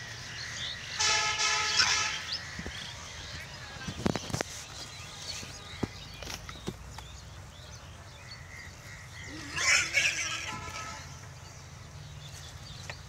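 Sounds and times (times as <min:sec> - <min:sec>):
harsh animal call: 0:09.2 - 0:11.0.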